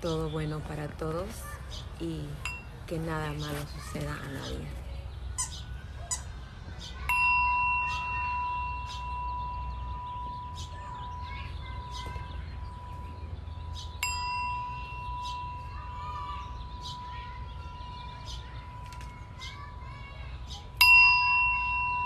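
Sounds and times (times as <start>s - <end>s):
singing bowl ringing: 2.4s - 3.1s, 7.0s - 22.0s.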